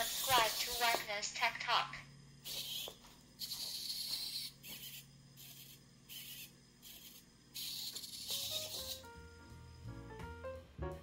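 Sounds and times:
servo motors whirring: 0:00.0 - 0:01.2, 0:02.4 - 0:09.1.

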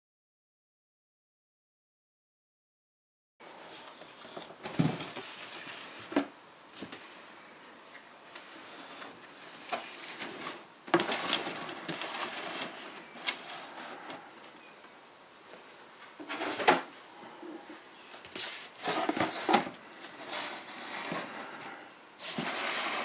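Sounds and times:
cardboard scraping: 0:08.4 - 0:14.4, 0:16.2 - 0:16.9, 0:18.3 - 0:23.0.

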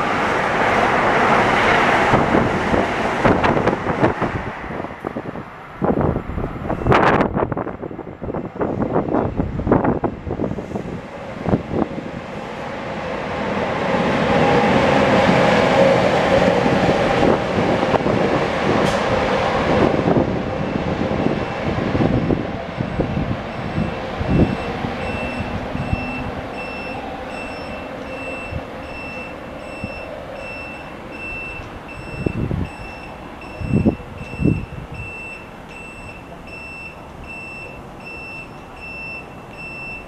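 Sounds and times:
train running noise: 0:00.0 - 0:40.0
high beeps: 0:23.5 - 0:40.0.

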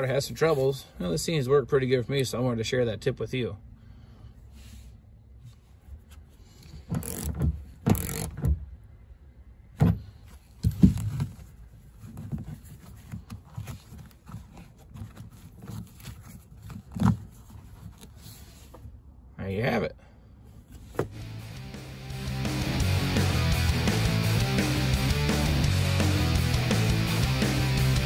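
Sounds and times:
seat belt webbing pulled: 0:05.4 - 0:08.7, 0:09.8 - 0:19.0.

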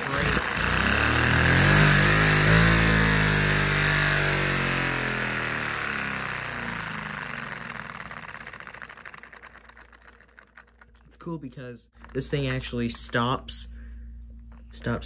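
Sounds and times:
vacuum cleaner winding down: 0:00.0 - 0:10.9
piston clatter: 0:06.5 - 0:11.3.

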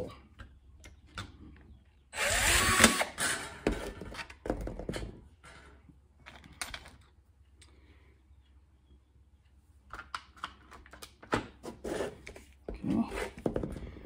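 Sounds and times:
drill whine boring metal: 0:02.2 - 0:03.4.

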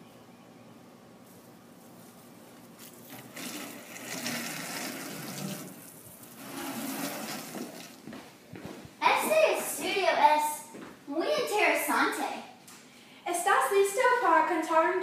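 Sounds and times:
garden hose spraying water: 0:02.7 - 0:08.0.

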